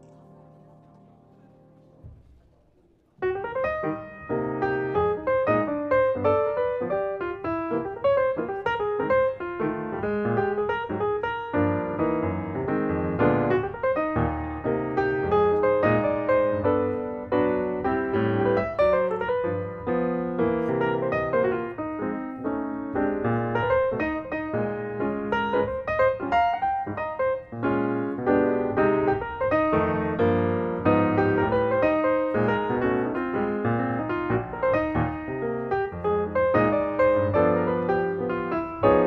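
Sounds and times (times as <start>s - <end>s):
piano music: 0.0s - 39.0s.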